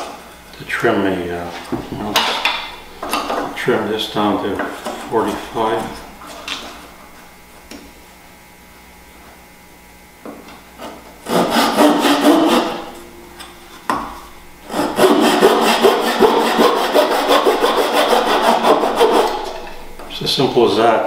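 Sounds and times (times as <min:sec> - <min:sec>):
saw cutting wood: 0:02.0 - 0:06.8, 0:10.8 - 0:20.2.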